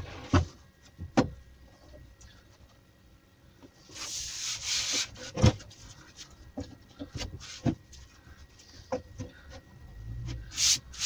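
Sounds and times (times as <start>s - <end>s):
hands rubbing across board: 3.9s - 5.6s.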